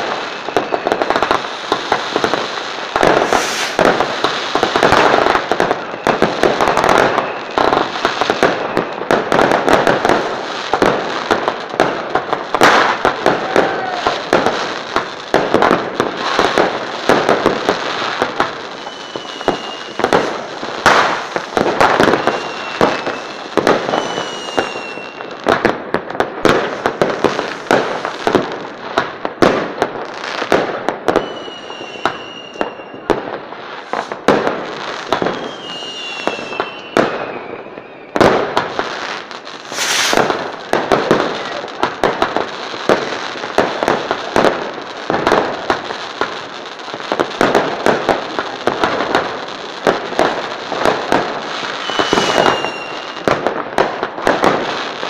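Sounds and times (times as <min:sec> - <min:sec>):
firework whistles: 0:00.0 - 0:10.4, 0:16.1 - 0:25.6, 0:31.1 - 0:41.8, 0:50.8 - 0:53.4
firework bangs and crackling: 0:00.0 - 0:55.0
hissing rush: 0:03.2 - 0:03.8, 0:39.6 - 0:40.4.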